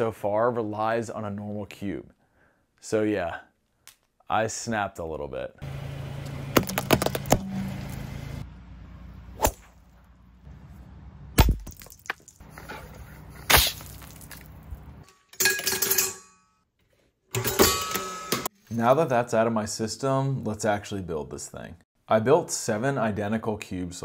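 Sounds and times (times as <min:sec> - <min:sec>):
low engine hum: 0:05.6 - 0:11.4
hatchet striking wood: 0:06.6 - 0:07.5.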